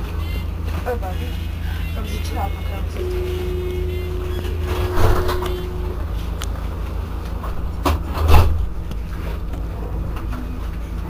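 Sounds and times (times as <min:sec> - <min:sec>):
tram humming: 0:00.0 - 0:11.0
held tone: 0:02.8 - 0:07.8.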